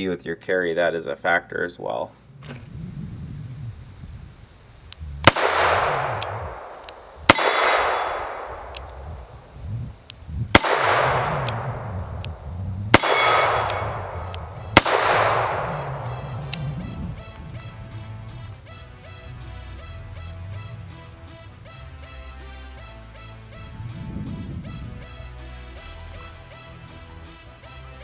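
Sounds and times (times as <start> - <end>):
revolver shots echoing: 5.2 - 9.3, 10.5 - 17.0.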